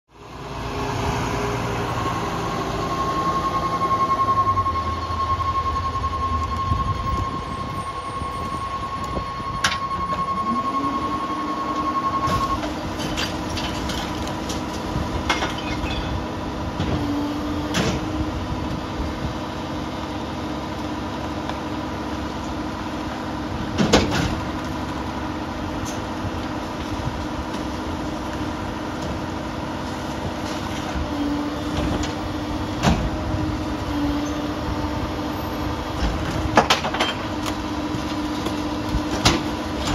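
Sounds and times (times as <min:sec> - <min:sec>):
diesel engine running: 0:00.1 - 0:39.9
steady high warning tone: 0:00.4 - 0:13.7, 0:31.0 - 0:36.3
bangs of carts being tipped: 0:35.9 - 0:37.4.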